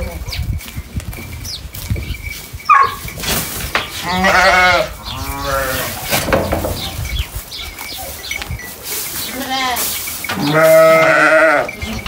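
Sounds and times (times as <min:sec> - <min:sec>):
rustling straw: 0:02.3 - 0:11.8
sheep bleating: 0:04.0 - 0:06.0, 0:09.3 - 0:11.9.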